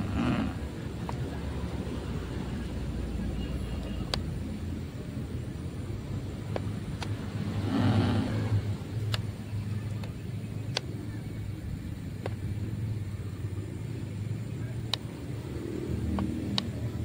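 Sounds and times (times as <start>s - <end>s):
low motor hum: 0.0s - 17.0s
sharp clicks: 3.8s - 4.3s, 6.5s - 7.2s, 9.0s - 11.0s, 14.8s - 15.2s, 16.0s - 16.8s.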